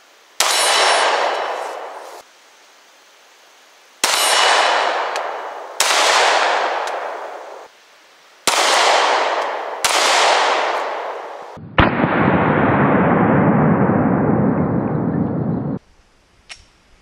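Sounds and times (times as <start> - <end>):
pistol shots echoing: 0.4 - 2.0, 4.0 - 7.7, 8.5 - 13.1.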